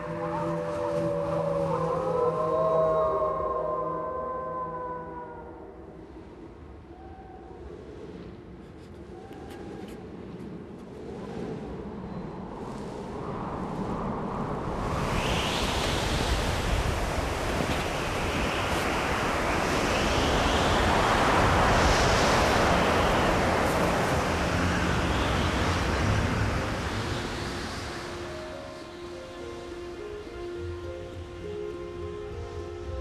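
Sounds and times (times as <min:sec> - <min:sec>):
snowstorm wind blowing hard: 0:06.0 - 0:33.0.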